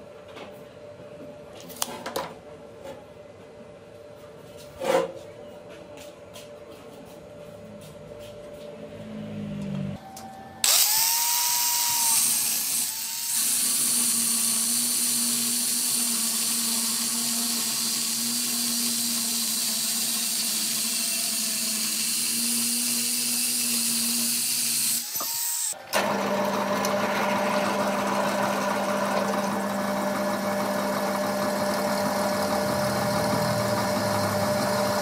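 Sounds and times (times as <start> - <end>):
angle grinder cutting steel: 10.6 - 26.9.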